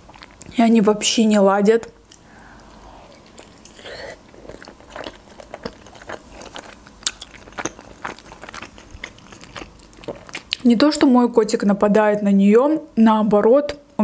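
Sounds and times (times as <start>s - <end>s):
person chewing a dumpling: 2.0s - 10.6s.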